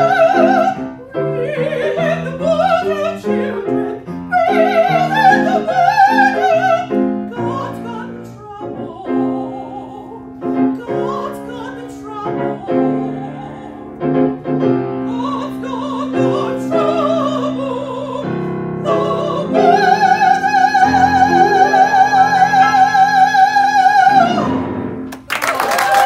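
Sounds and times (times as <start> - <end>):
operatic woman singing: 0.0 - 24.6
grand piano accompaniment: 0.0 - 25.6
audience applause: 25.1 - 26.0.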